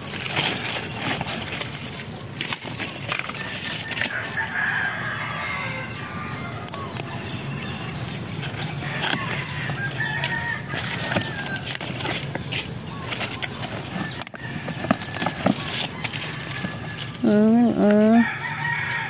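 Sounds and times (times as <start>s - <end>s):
rooster crowing: 3.3s - 12.2s, 14.0s - 19.0s.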